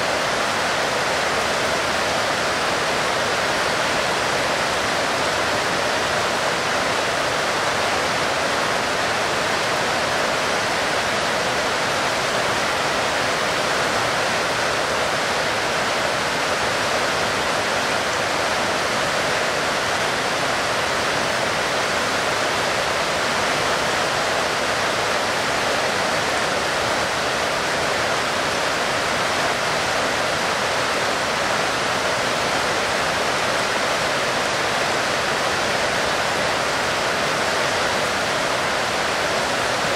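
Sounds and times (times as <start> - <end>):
heavy rain: 0.0 - 39.9.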